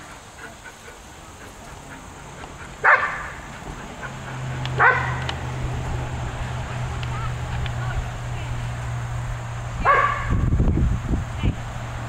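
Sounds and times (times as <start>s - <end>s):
dog barking: 2.8s - 3.5s, 4.7s - 5.4s, 9.8s - 10.4s.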